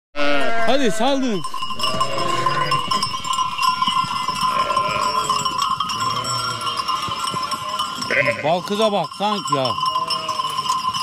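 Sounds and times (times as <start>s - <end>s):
sheep bleating: 0.2s - 3.0s, 4.5s - 5.4s, 6.0s - 8.8s, 9.9s - 10.6s
livestock bells ringing: 0.2s - 11.0s.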